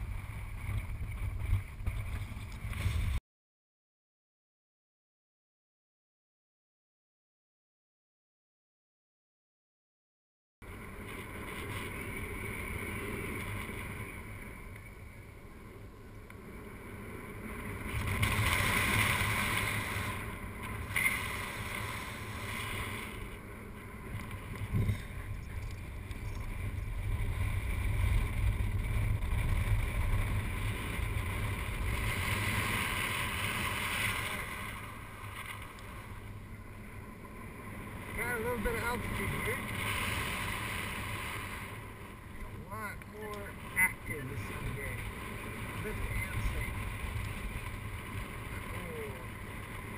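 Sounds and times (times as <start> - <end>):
wind buffeting microphone: 0.0 - 3.2, 17.1 - 36.7.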